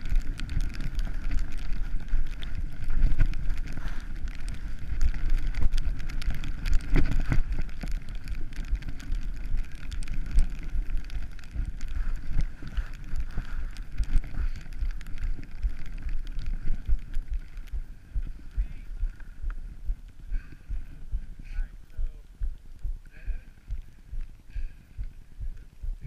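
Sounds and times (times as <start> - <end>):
skis scraping over snow: 0.0 - 19.4
wind buffeting microphone: 0.0 - 26.0.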